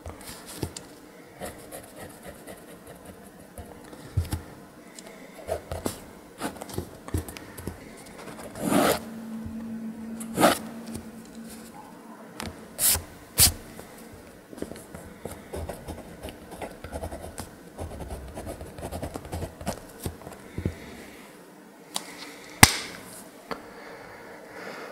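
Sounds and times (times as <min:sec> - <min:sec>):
pencil scratching on paper: 0:01.4 - 0:03.7, 0:15.2 - 0:19.9.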